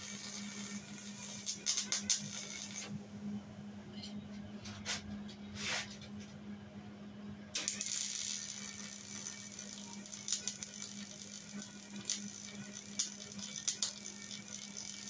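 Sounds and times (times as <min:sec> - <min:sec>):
welder arc crackling: 0:00.0 - 0:02.9, 0:07.6 - 0:15.0.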